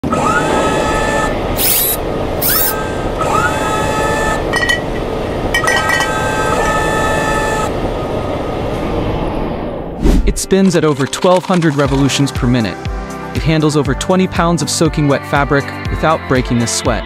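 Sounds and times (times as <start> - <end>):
motors whining: 0.0 - 9.8.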